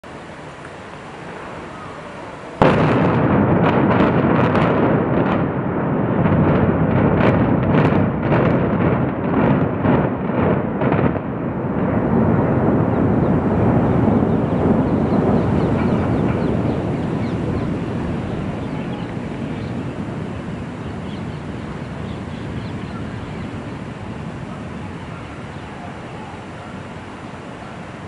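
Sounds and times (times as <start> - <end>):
loud demolition blast: 2.6 - 25.1
sharp detonation cracks: 2.6 - 25.2
rumble of collapsing towers: 2.6 - 28.0.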